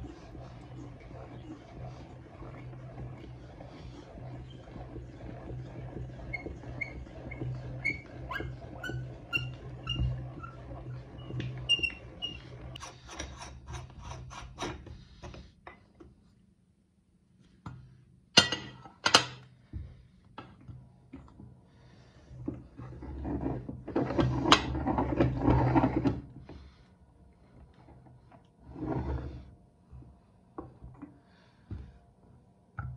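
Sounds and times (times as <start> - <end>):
hand-cranked grinder squeaking: 0.0 - 14.8
rubbing and scraping: 0.0 - 16.3, 21.8 - 26.8, 27.4 - 31.1.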